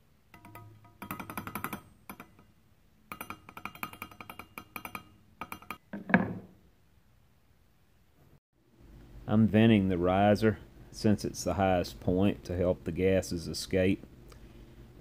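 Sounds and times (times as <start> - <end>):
metal tool rapping metal rod: 0.3 - 2.5, 3.1 - 5.8.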